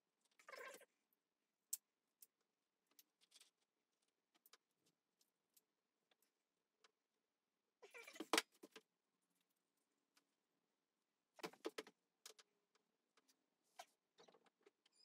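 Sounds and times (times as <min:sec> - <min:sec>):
small clicks and scrapes: 0:01.7 - 0:07.0.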